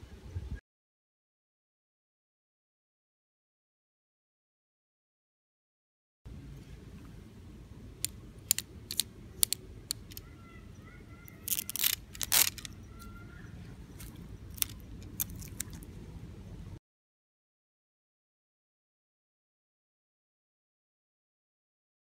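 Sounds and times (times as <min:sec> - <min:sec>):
tape pulled off reel: 0:08.0 - 0:10.2, 0:11.3 - 0:12.8, 0:14.0 - 0:15.8.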